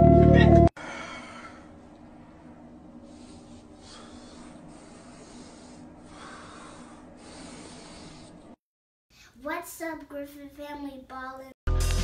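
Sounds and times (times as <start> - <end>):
steady low hum: 0.8 - 8.6.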